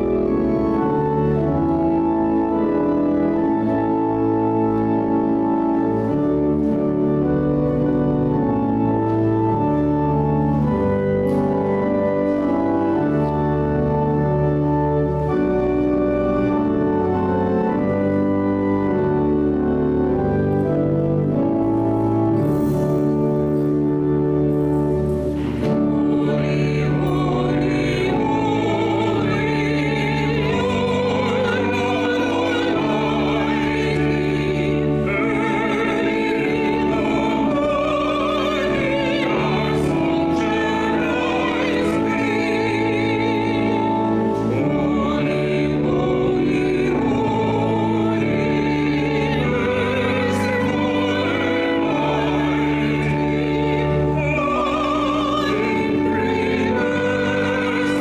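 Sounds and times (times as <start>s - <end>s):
long held accompanying chords: 0.0s - 58.0s
voices singing with vibrato: 25.5s - 58.0s.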